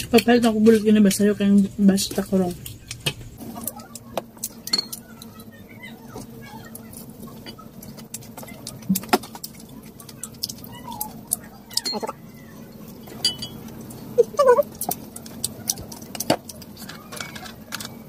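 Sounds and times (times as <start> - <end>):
faint steady hum: 0.0 - 18.0
dishes clicking and knocking: 2.8 - 5.4, 7.3 - 12.3, 12.9 - 18.0
wavering cry-like sound: 14.0 - 14.9.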